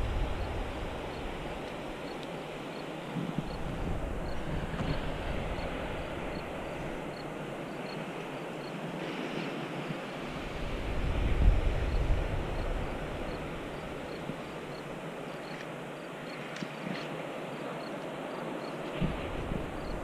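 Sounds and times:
wind buffeting microphone: 0.0s - 15.4s, 18.8s - 20.0s.

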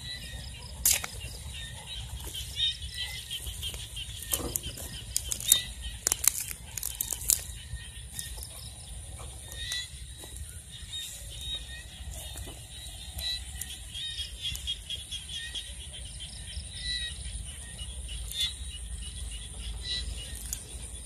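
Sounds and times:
footsteps through tall grass: 0.0s - 16.2s
steady low rumble: 0.0s - 21.0s
sharp crackles and clicks: 3.6s - 8.6s.

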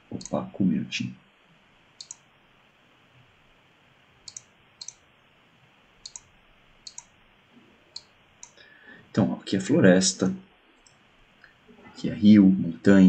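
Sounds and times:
low background hiss: 0.0s - 13.0s
computer mouse clicking: 2.0s - 2.2s, 4.2s - 5.0s, 6.0s - 7.1s, 8.0s - 8.6s.

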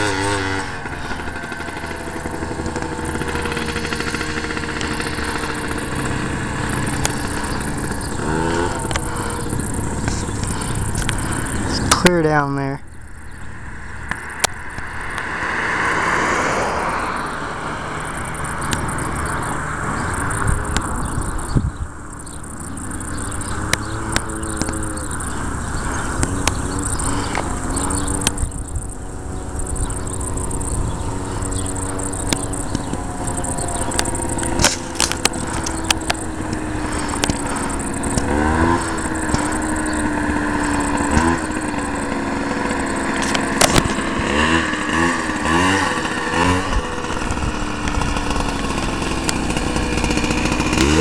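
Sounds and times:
car passing: 0.0s - 51.0s
two-stroke buggy engine: 0.0s - 51.0s.

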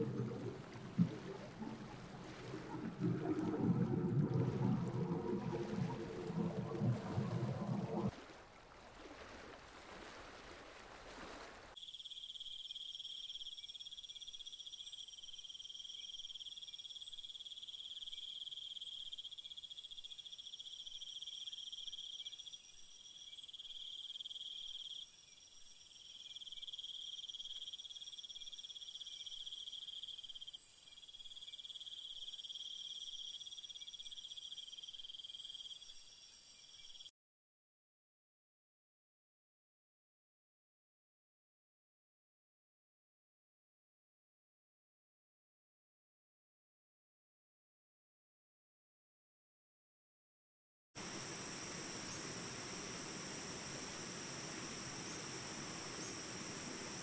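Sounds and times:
insects chirring: 11.8s - 37.1s, 51.0s - 57.0s.

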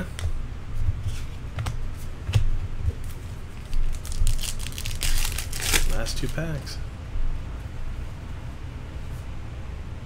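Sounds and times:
cards rustling: 3.0s - 6.7s.

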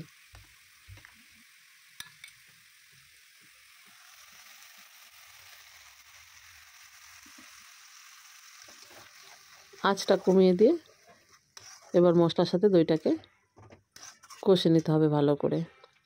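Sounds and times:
paste sizzling in oil: 0.0s - 13.2s, 13.9s - 15.1s
yogurt poured into hot pan: 0.2s - 12.0s.

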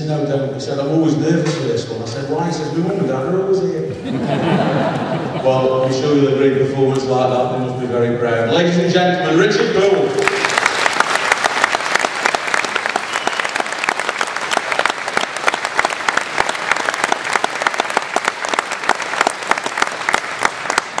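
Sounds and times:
audience applauding: 9.9s - 21.0s.

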